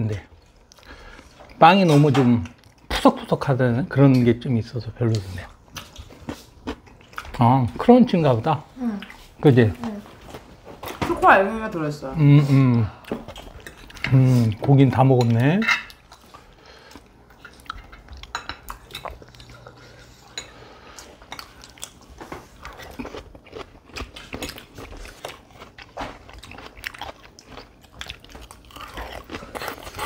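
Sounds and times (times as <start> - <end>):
chewing: 5.1 - 7.4, 13.0 - 14.7, 15.9 - 30.0.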